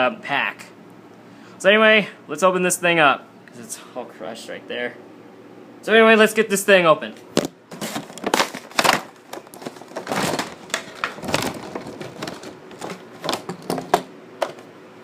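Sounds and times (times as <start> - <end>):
plastic blister pack crinkling: 7.7 - 14.6.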